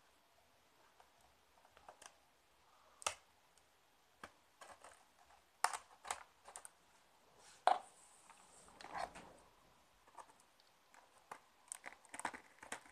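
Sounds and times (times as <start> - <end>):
blade clicking and scraping cardboard: 11.7 - 12.9.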